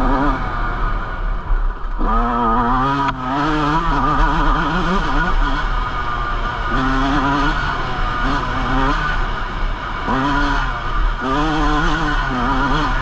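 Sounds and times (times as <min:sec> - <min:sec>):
dirt bike engine revving: 0:00.0 - 0:13.0.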